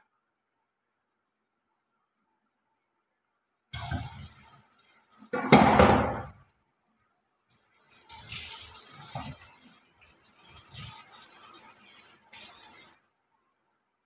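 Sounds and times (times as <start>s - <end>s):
hiss: 7.8s - 13.1s.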